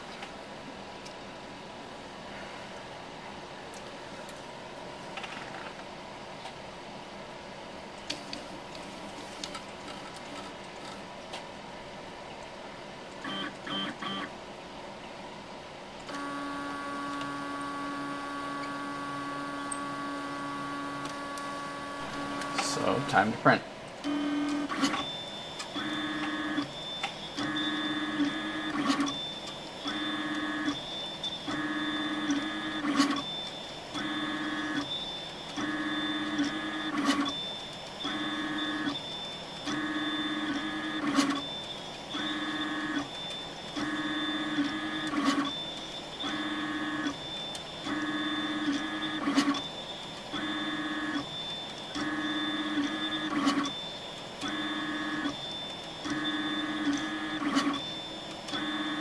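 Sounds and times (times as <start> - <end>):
stepper motors whining: 16.1 - 23.4.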